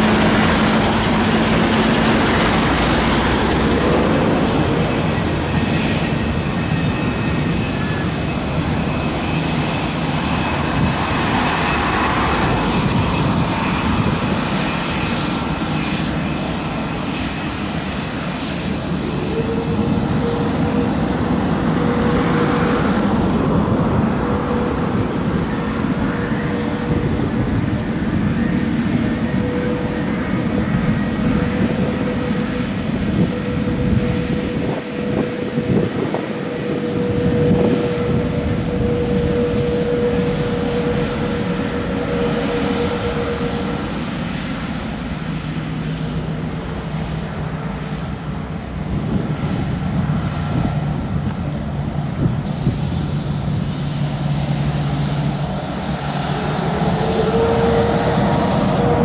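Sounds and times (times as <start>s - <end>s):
jet engine rumble and hiss: 0.0s - 59.0s
jet engine whine: 0.0s - 59.0s.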